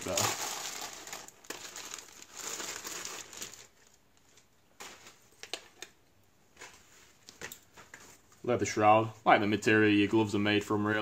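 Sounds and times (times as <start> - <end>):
packaging rustling: 0.0 - 8.1.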